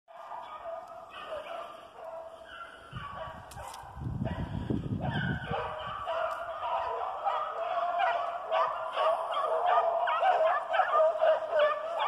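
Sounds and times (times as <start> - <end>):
hounds baying: 0.1 - 12.0.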